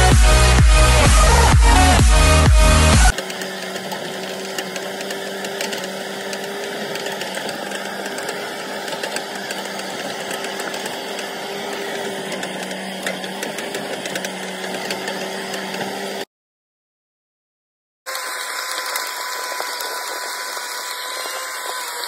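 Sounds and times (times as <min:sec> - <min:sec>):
diesel engine running: 0:00.0 - 0:16.2
rattles and clatter: 0:00.5 - 0:16.2.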